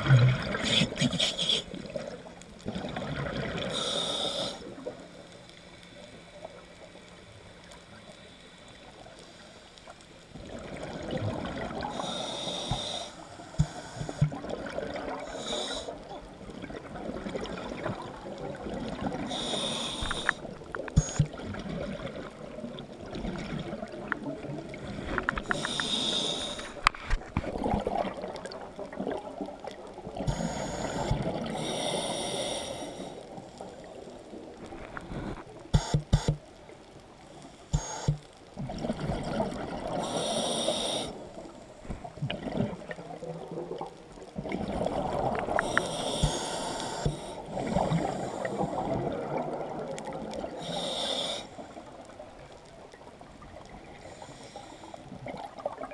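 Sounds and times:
bubbling exhale underwater: 0.0 - 3.9, 42.0 - 50.6
hissing inhale through regulator: 3.6 - 6.4, 11.8 - 14.5, 15.2 - 16.1, 19.2 - 21.3, 24.8 - 26.9, 30.2 - 36.4, 37.4 - 38.3, 39.9 - 41.9, 45.3 - 49.0, 50.5 - 52.1, 53.8 - 55.2.

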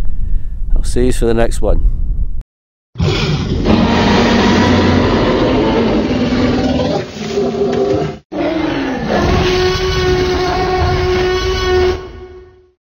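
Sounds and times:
dinosaur roar: 3.0 - 12.4.

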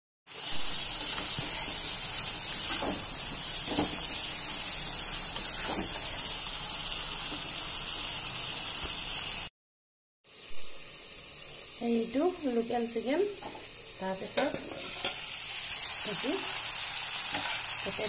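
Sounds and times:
curry sizzling in hot oil: 0.3 - 9.5, 10.3 - 18.0
metal spatula scraping pan: 14.4 - 15.3, 17.3 - 17.7.

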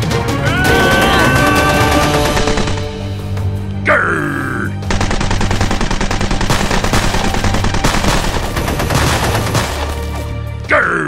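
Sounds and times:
background music with low notes: 0.0 - 11.0
rapid automatic gunfire: 0.9 - 3.1, 4.9 - 10.1.

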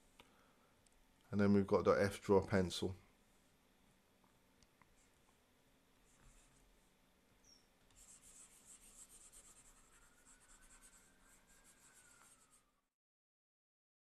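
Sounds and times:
stylus scratching on drawing tablet: 7.9 - 12.8.

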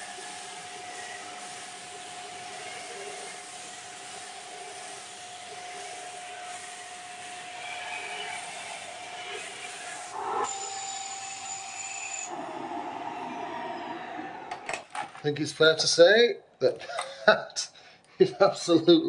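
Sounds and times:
vacuum cleaner whining: 0.0 - 15.1.

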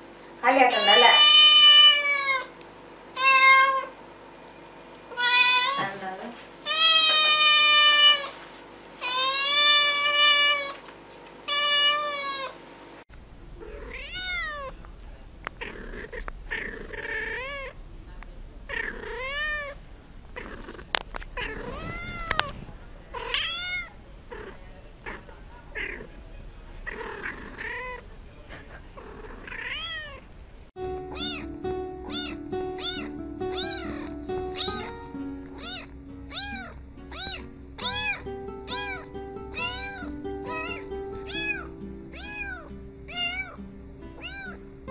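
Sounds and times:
kittens meowing: 13.5 - 30.3, 31.0 - 43.6, 44.2 - 44.6.

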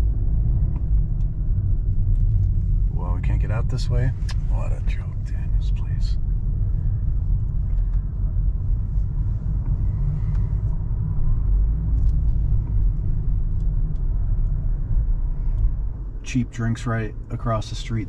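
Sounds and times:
car cabin rumble: 0.0 - 18.0.

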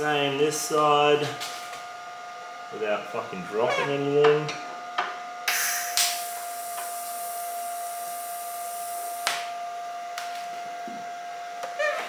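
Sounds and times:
welding arc hissing: 5.5 - 9.5.

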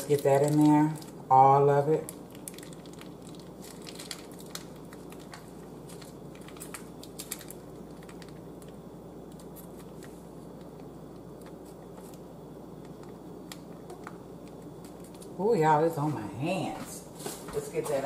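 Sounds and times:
steady low hum: 0.0 - 18.0
foil pouch crinkling and clicking: 2.0 - 15.4.

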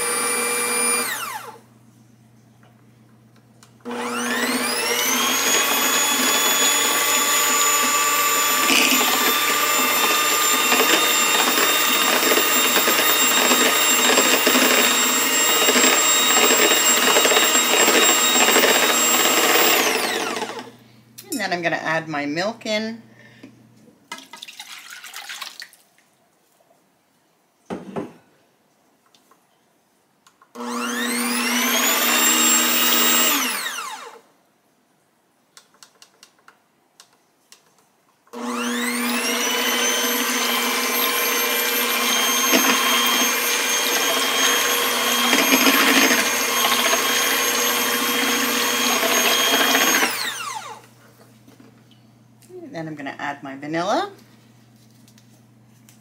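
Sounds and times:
electric hand mixer whining: 0.0 - 1.6, 3.8 - 20.8, 30.6 - 34.2, 38.4 - 50.9
milk pouring into a bowl: 24.2 - 26.0.

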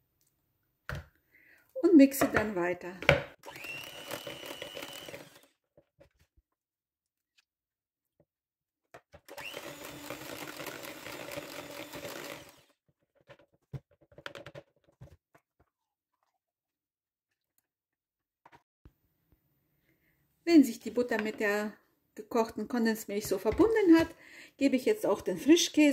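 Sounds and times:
electric hand mixer whining: 3.4 - 5.6, 9.2 - 12.8.

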